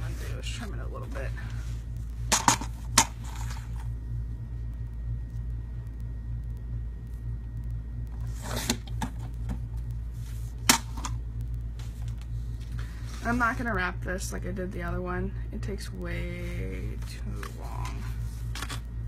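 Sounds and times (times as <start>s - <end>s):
steady low hum: 0.0s - 19.0s
paper scraping: 8.2s - 8.9s.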